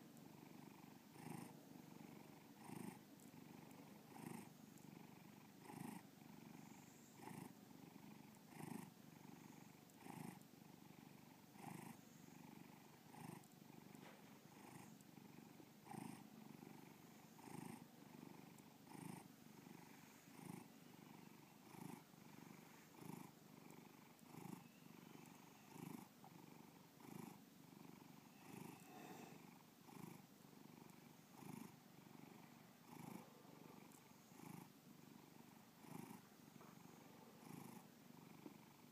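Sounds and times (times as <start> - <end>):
cat purring: 0.0 - 38.9.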